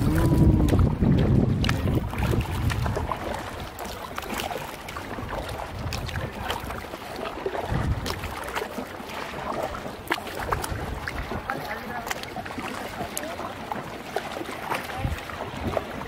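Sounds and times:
water dripping: 0.0 - 4.5
paddle splashing water: 0.0 - 16.0.

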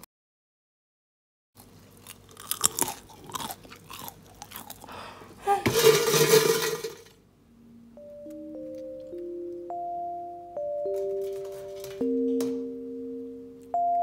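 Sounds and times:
crispy tofu crunching: 1.6 - 5.0.

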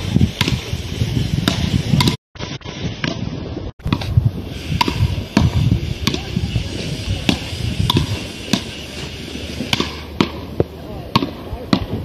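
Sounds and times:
paddle rackets hitting ball: 9.6 - 12.0.

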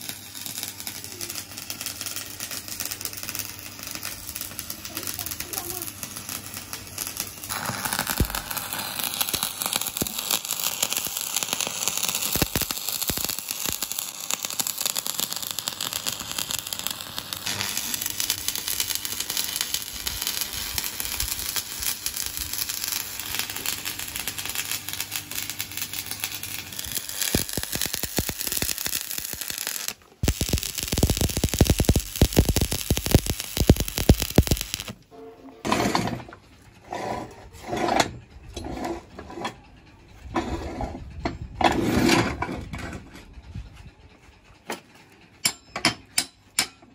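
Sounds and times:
welding arc crackling: 0.0 - 35.0.

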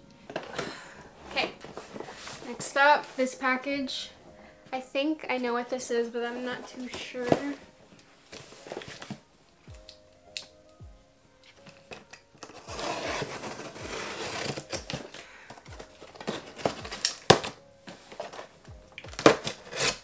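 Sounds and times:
packing tape tearing: 11.5 - 20.0.

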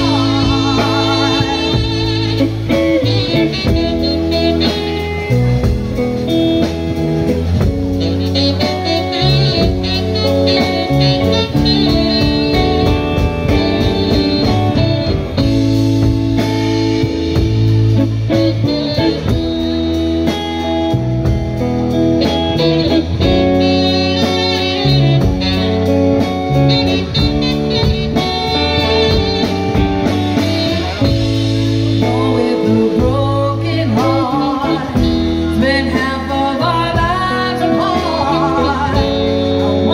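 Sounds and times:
woman singing: 0.0 - 5.0, 31.9 - 39.9
blues band playing: 0.0 - 39.9
electric guitar lead: 0.0 - 39.9.

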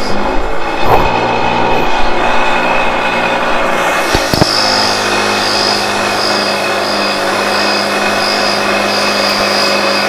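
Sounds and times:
power tool pulsing whine: 0.0 - 10.0.

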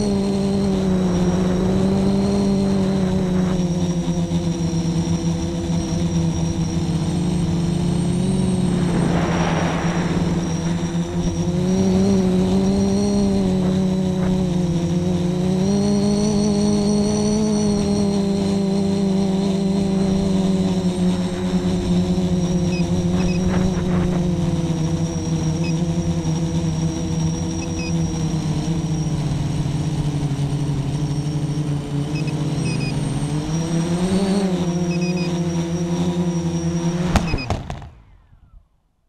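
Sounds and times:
quadcopter motors whining: 0.0 - 38.6
drone touching down knock: 7.6 - 14.7.

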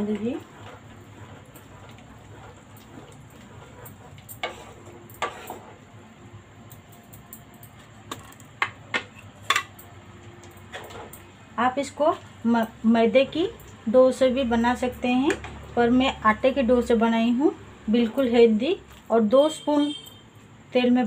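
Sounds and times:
wooden spatula stirring soup: 0.0 - 5.9.

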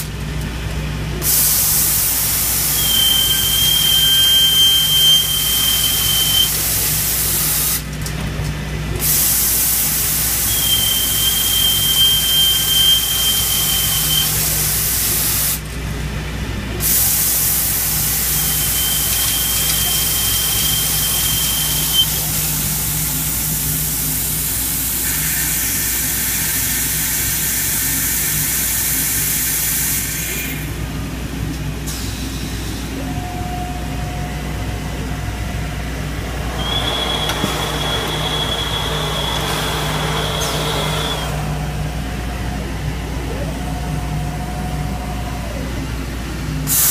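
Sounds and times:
drilling machine hissing: 1.2 - 7.9, 9.0 - 15.6, 16.8 - 30.8, 35.9 - 41.9, 46.7 - 46.9
thin high whine: 2.7 - 6.6, 33.0 - 45.4.

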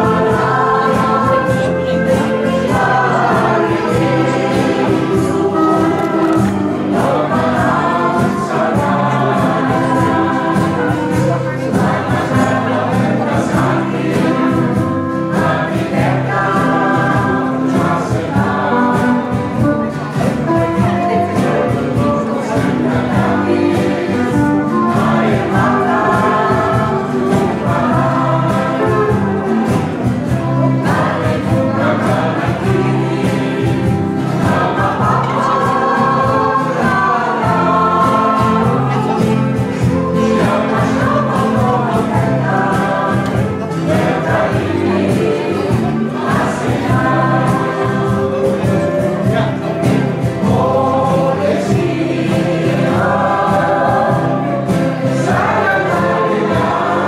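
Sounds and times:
mixed choir singing: 0.0 - 57.0
small band with guitars: 0.0 - 57.0.

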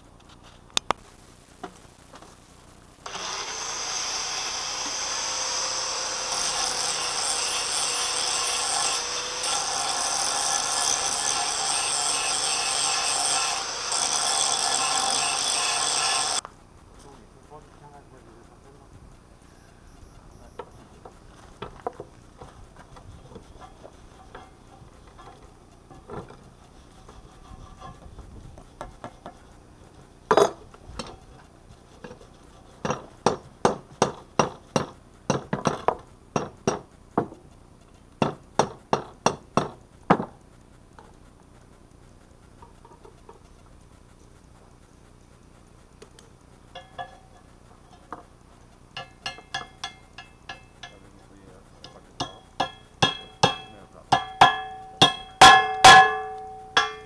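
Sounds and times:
hammer striking hot steel on anvil: 32.8 - 37.3, 38.2 - 40.3, 46.7 - 48.2, 49.0 - 51.1, 51.8 - 57.0.

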